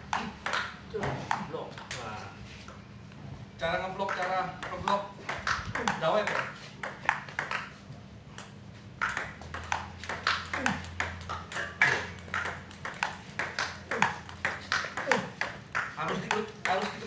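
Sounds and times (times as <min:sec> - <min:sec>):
table tennis ball clicking: 0:04.1 - 0:07.7, 0:08.4 - 0:17.0.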